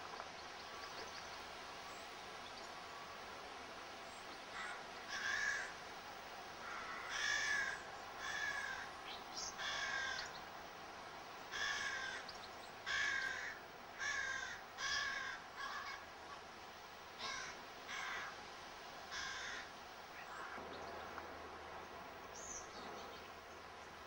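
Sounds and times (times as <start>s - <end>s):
crow cawing: 4.5s - 5.8s, 6.6s - 8.9s, 9.6s - 10.3s, 11.5s - 12.2s, 12.8s - 16.0s, 17.2s - 18.4s, 19.1s - 20.6s.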